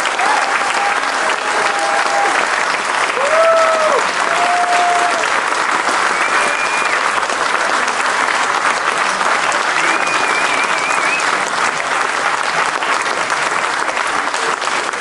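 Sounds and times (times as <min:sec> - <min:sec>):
audience applauding: 0:00.0 - 0:15.0
cheers and whistles: 0:00.1 - 0:02.4, 0:03.2 - 0:05.3, 0:06.0 - 0:07.1, 0:09.7 - 0:11.4.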